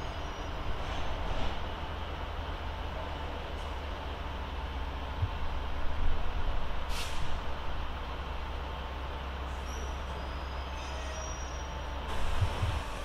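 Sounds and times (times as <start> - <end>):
diesel locomotives rumbling: 0.0 - 13.0
air hiss: 6.9 - 7.4
faint high squeals: 9.5 - 12.0.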